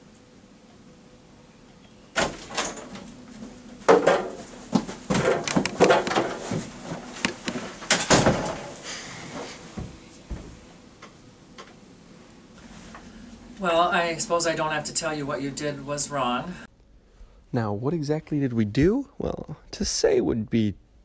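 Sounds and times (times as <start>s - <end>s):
door opening: 2.2s - 8.8s
knocks thumps and scuffs: 3.8s - 8.7s, 9.7s - 10.7s.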